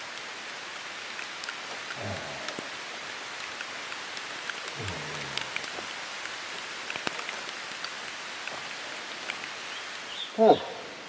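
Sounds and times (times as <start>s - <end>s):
steady rain falling: 0.0s - 11.0s
drops ticking on surfaces: 1.1s - 9.6s.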